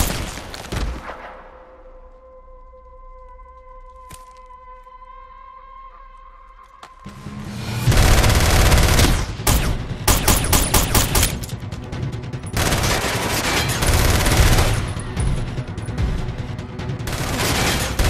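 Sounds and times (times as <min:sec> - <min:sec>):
rapid automatic gunfire: 0:07.9 - 0:11.4, 0:12.6 - 0:14.9, 0:17.1 - 0:18.0.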